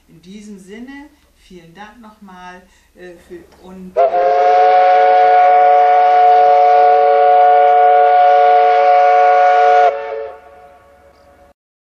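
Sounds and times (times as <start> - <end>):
steam whistle chord: 4.0 - 11.6.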